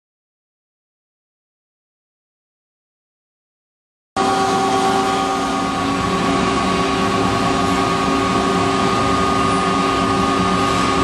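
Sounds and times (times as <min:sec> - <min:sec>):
cutting machine hiss and hum: 0:04.2 - 0:11.0.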